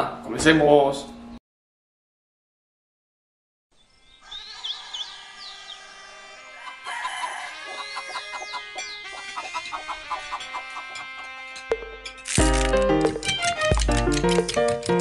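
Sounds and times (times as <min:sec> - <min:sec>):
birds chirping: 0:03.7 - 0:12.2
rooster crowing: 0:04.2 - 0:12.0
light background music: 0:11.8 - 0:15.0
short regular taps: 0:13.0 - 0:15.0.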